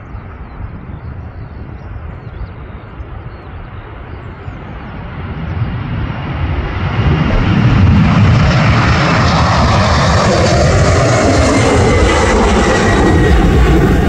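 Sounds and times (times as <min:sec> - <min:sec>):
jet engines at takeoff thrust: 0:00.0 - 0:14.0.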